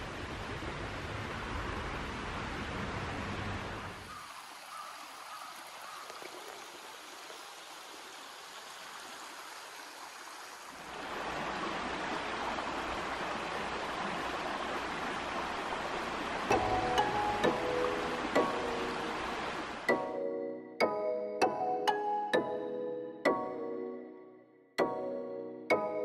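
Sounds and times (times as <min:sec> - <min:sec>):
stream running over rocks: 0:00.0 - 0:19.9.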